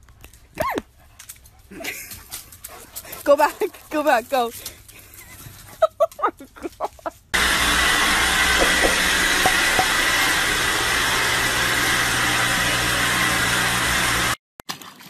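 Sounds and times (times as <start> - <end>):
robot vacuum whirring: 7.4 - 14.4.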